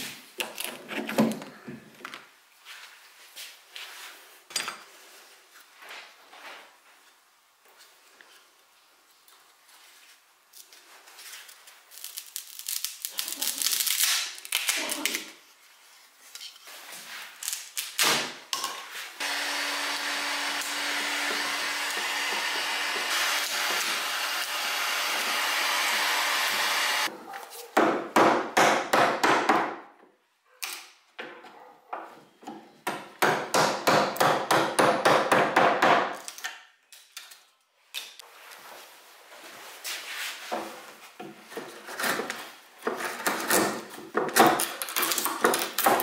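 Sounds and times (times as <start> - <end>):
heat gun blowing: 19.2 - 27.1.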